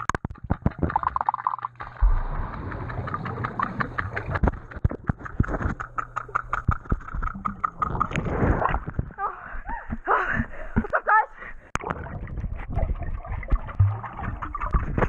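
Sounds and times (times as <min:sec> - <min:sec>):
bubbles: 0:00.0 - 0:09.2, 0:11.8 - 0:15.0
clicks and knocks underwater: 0:00.0 - 0:11.1, 0:11.7 - 0:15.0
muffled underwater thump: 0:02.0 - 0:07.0
steady low hum: 0:02.0 - 0:08.2.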